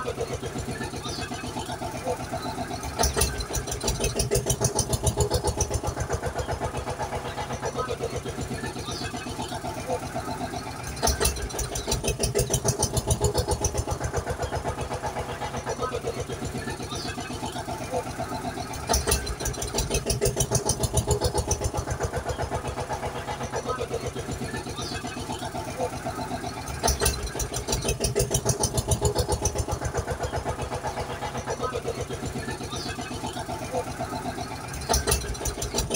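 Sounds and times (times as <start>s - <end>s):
tractor engine chugging: 0.0s - 35.9s.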